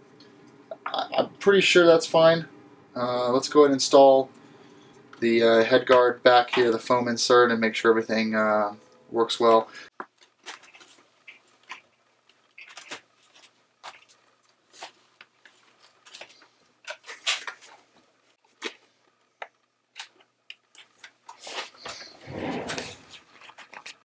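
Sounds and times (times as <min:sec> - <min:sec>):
rustling scrape: 0:21.4 - 0:23.3.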